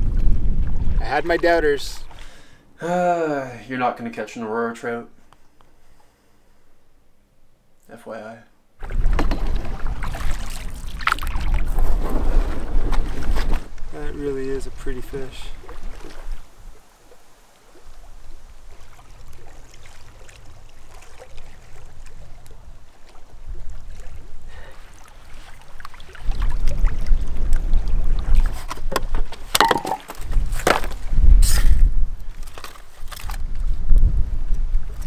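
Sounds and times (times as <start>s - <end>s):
wind rumbling on microphone: 0.0s - 2.1s, 8.8s - 35.0s
small waves lapping: 8.8s - 13.7s, 15.0s - 28.8s.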